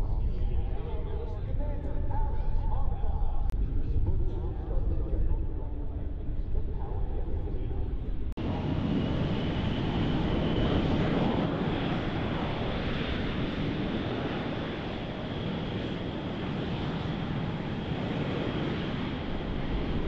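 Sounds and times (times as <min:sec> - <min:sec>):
jet engines rushing: 0:05.7 - 0:20.0.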